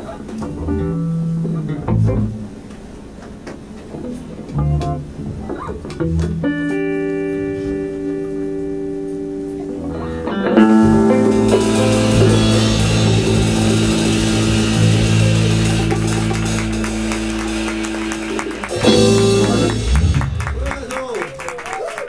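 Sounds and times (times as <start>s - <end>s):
live rock band playing: 5.8s - 21.4s
electric guitar chord ringing: 6.4s - 20.9s.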